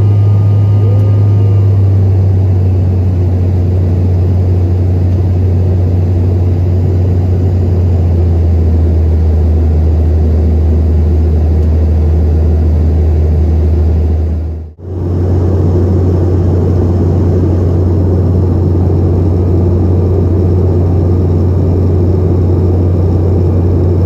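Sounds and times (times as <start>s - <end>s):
jet cabin engine drone: 0.0s - 24.0s.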